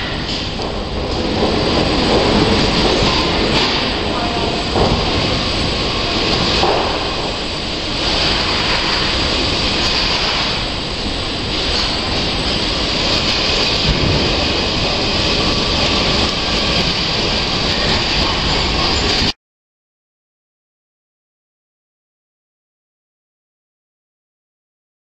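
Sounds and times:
assembly line machinery din: 0:00.0 - 0:19.4.

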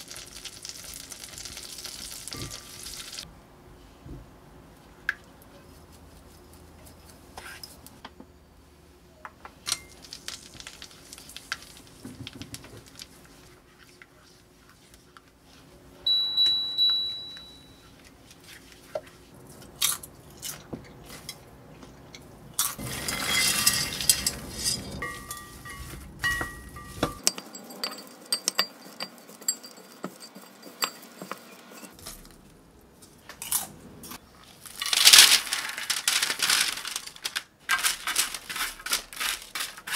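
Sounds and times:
short beeps: 0:16.1 - 0:17.9
spatula scraping a pot: 0:22.8 - 0:32.0.

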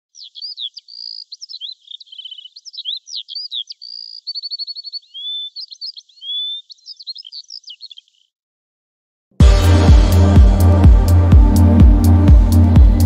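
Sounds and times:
songbird singing: 0:00.0 - 0:08.4.

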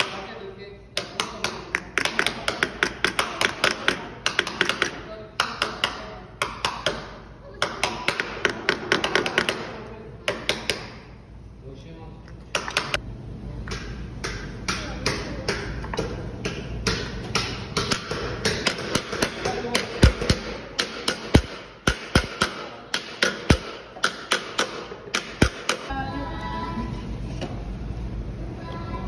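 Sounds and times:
wooden mallet knocking on metal: 0:14.2 - 0:25.9.

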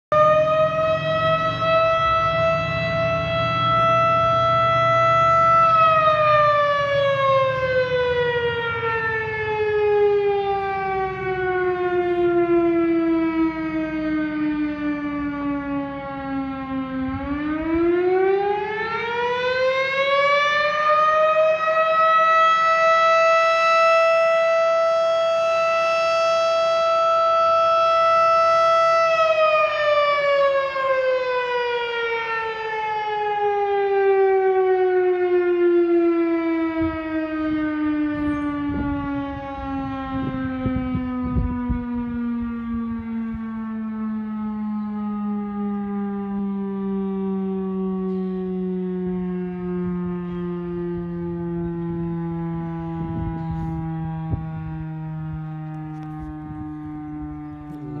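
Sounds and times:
fire siren winding: 0:00.1 - 0:58.0.

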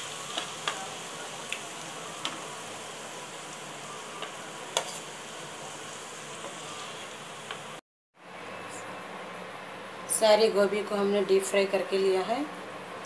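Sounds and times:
hot oil sizzling: 0:00.0 - 0:07.8.

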